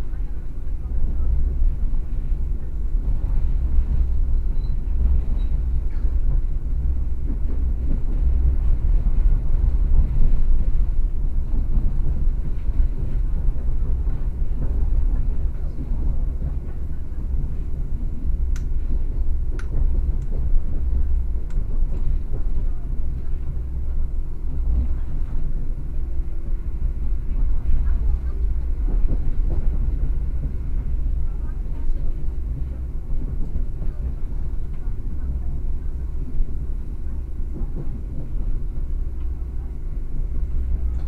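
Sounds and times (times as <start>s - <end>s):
train rumble inside carriage: 0.0s - 41.0s.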